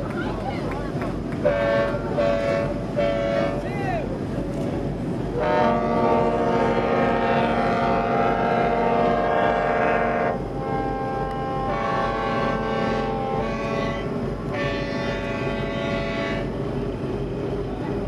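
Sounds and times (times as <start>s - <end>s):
churning water: 0.0s - 18.0s
engines rumbling: 0.0s - 18.0s
tugboat horn blasts: 1.4s - 3.7s, 5.4s - 16.6s.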